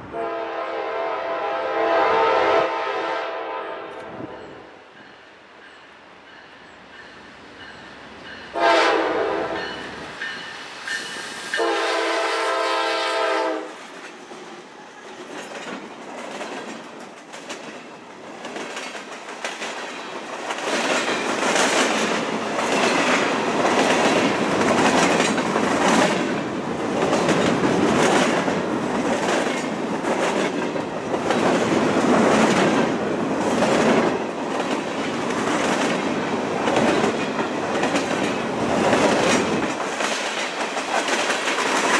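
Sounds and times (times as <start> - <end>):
freight train rumbling: 0.0 - 41.9
train horn blasts: 0.1 - 4.9, 8.5 - 9.9, 11.5 - 13.8
wheels clickety-clack over rail joints: 13.8 - 41.9.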